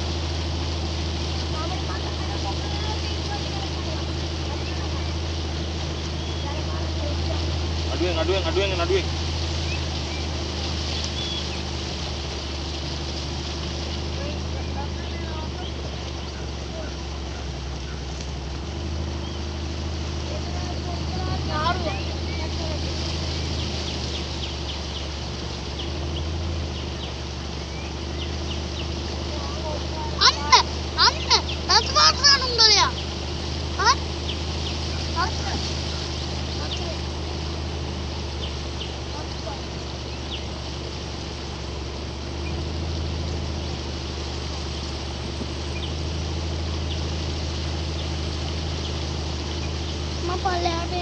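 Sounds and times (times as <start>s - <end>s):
boat motor running: 0.0s - 51.0s
water rushing past hull: 0.0s - 51.0s
high bird chirps: 4.6s - 6.6s, 9.5s - 11.7s, 30.1s - 37.1s.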